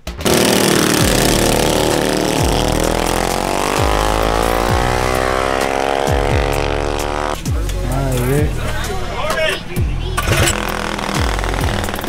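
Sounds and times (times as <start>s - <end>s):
mini bike engines at full throttle: 0.0s - 7.4s, 10.0s - 12.0s.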